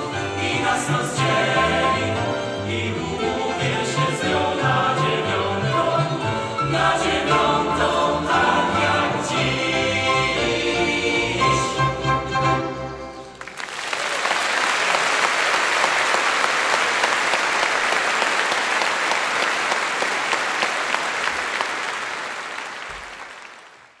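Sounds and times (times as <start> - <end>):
audience applause: 13.3 - 24.0.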